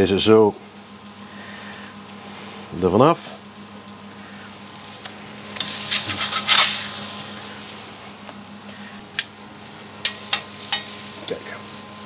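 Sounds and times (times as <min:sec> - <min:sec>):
burger sizzling on a griddle: 0:00.0 - 0:12.0
spatula clicking and scraping: 0:05.6 - 0:06.8.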